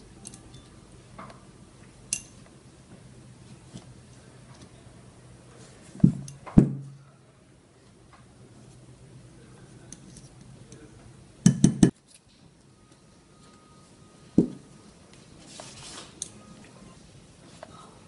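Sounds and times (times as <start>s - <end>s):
hammer tapping metal pin: 6.0s - 7.0s, 11.4s - 12.0s.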